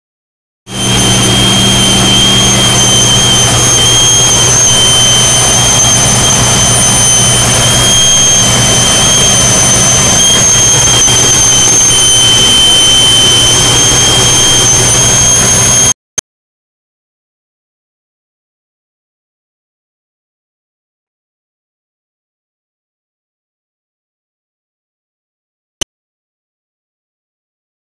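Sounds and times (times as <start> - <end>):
high-pitched engine whistle: 0.7 - 16.0.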